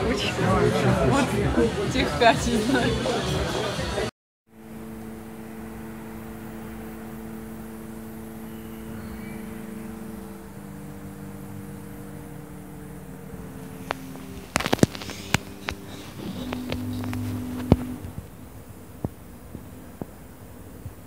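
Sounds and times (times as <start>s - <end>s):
vehicle running hum: 4.5s - 21.0s.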